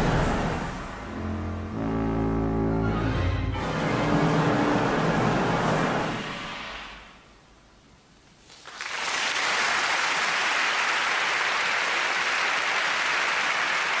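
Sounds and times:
audience applauding: 0:08.5 - 0:14.0.

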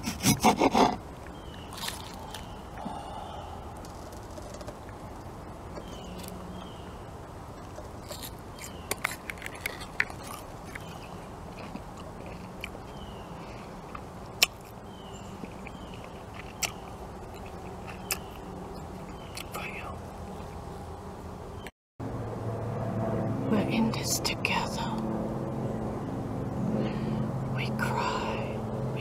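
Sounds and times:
onion being chewed: 0:00.0 - 0:05.2, 0:07.6 - 0:19.6.

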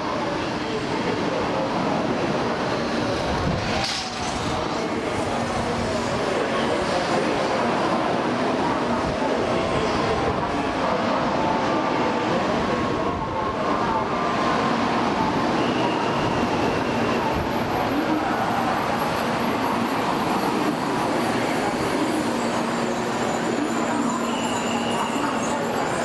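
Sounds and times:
train wheels rumbling on rail: 0:02.3 - 0:07.7
faint high squeal: 0:15.4 - 0:26.0.

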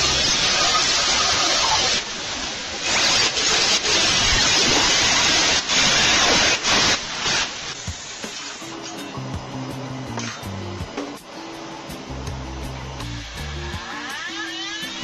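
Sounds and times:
angle grinder cutting steel: 0:00.0 - 0:02.0, 0:13.0 - 0:15.0.

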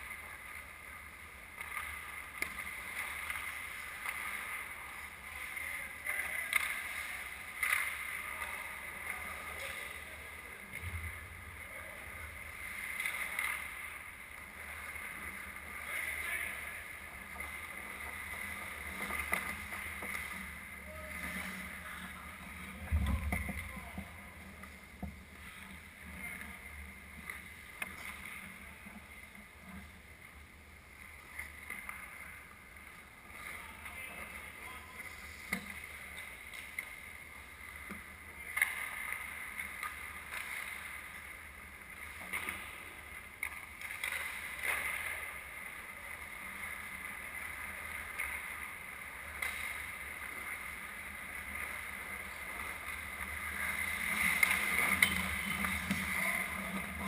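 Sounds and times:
skates scraping on ice: 0:00.1 - 0:10.1, 0:12.4 - 0:29.9, 0:31.1 - 0:57.0
hockey sticks and puck clacking: 0:01.5 - 0:10.0, 0:12.5 - 0:20.6, 0:27.2 - 0:28.6, 0:33.0 - 0:41.3, 0:43.4 - 0:45.4, 0:46.2 - 0:57.0.

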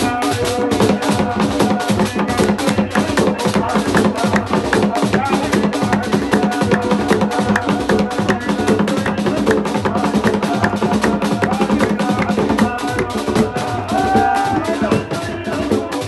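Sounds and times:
fast dense drumming: 0:00.0 - 0:16.0
voices chanting: 0:10.0 - 0:15.0.

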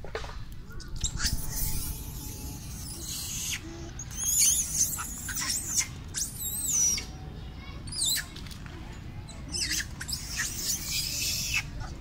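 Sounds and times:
wavering animal squeals: 0:00.8 - 0:07.1, 0:09.5 - 0:11.7.

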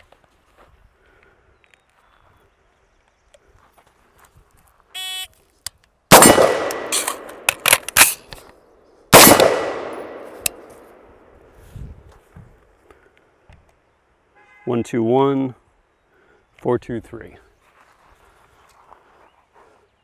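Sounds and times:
magazine change clacks: 0:05.7 - 0:08.6, 0:09.2 - 0:10.9
gunshot with echo: 0:06.1 - 0:07.5, 0:09.1 - 0:11.0.

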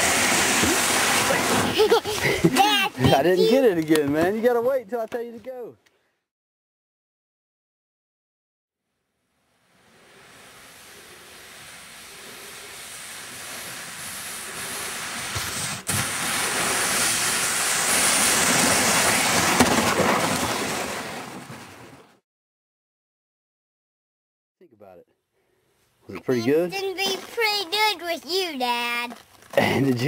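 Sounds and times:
kayak hull hissing over snow: 0:00.0 - 0:03.5, 0:09.4 - 0:21.6.

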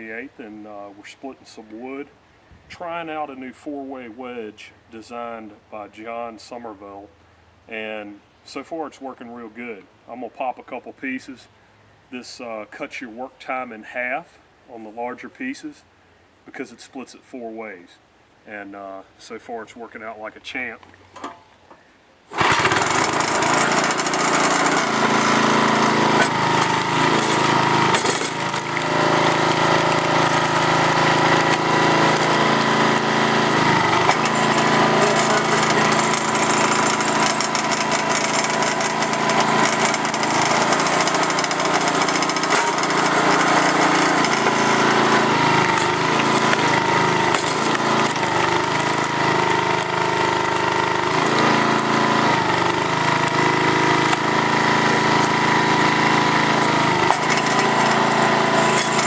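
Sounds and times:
small gasoline engine running: 0:22.3 - 0:59.0.

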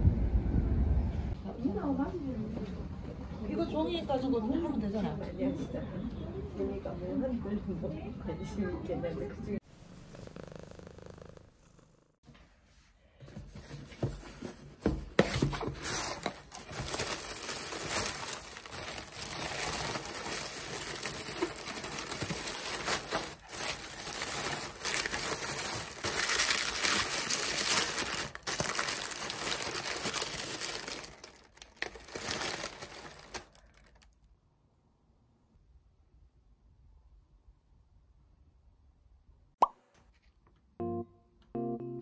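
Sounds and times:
packing paper crinkling and rustling: 0:15.2 - 0:34.2.

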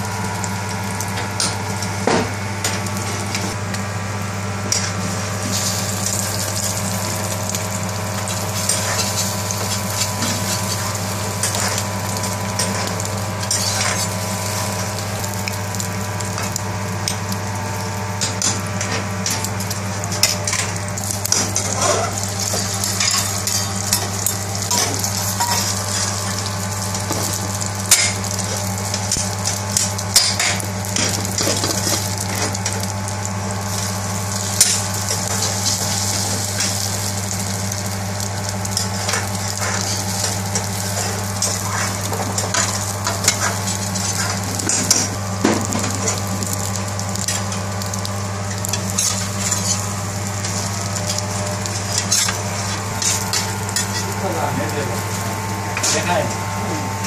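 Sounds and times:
egg sizzling in oil: 0:00.0 - 0:57.0
metal spatula scraping a pan: 0:12.6 - 0:14.1.

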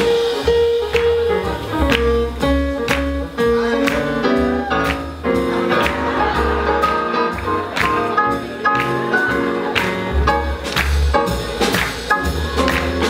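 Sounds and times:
drums striking: 0:00.0 - 0:13.0
swing jazz band playing: 0:00.0 - 0:13.0.

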